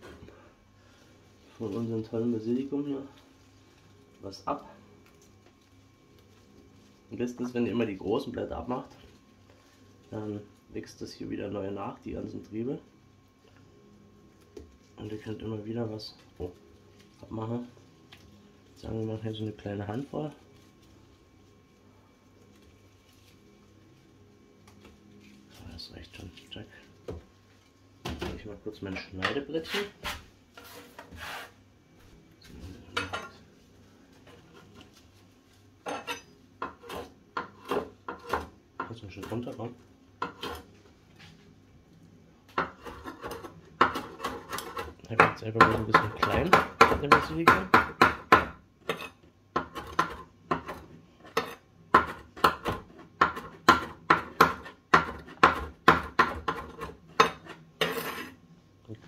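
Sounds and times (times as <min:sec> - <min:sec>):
knife chopping leaves: 0:42.6 - 0:58.2.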